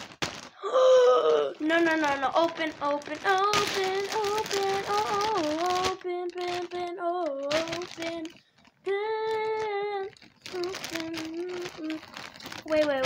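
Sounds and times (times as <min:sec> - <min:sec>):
rustling: 0:00.0 - 0:13.0
girl singing: 0:00.6 - 0:13.0.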